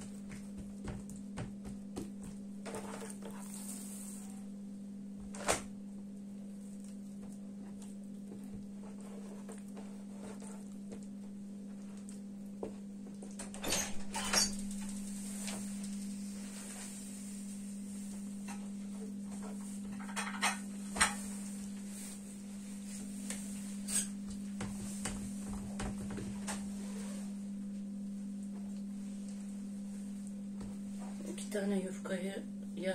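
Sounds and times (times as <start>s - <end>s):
hands knocking dough on wooden table: 0.0s - 2.5s.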